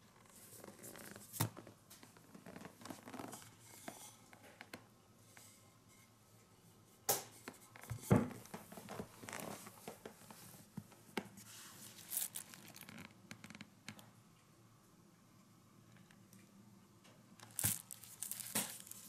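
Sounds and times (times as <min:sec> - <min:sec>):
cardboard packaging rustling: 0:11.4 - 0:13.0, 0:17.4 - 0:19.0.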